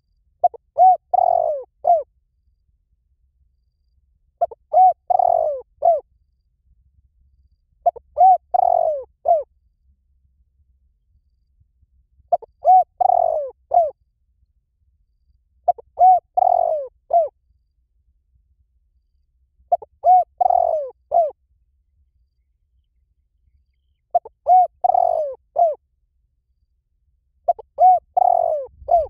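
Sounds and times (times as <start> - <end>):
dove cooing: 0.4 - 2.1, 4.4 - 6.0, 7.8 - 9.5, 12.3 - 14.0, 15.7 - 17.3, 19.7 - 21.4, 24.1 - 25.8, 27.5 - 29.0.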